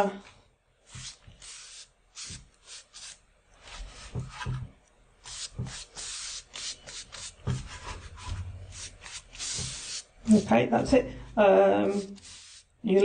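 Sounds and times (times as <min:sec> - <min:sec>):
brush swishing on canvas: 0:00.9 - 0:04.5, 0:05.2 - 0:10.6, 0:11.8 - 0:13.0.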